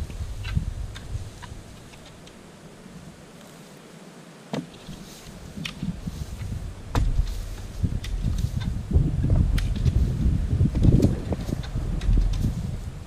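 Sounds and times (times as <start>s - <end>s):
wind rumble on microphone: 0.0s - 2.3s, 4.8s - 13.0s
rake scraping through dirt: 4.7s - 13.0s.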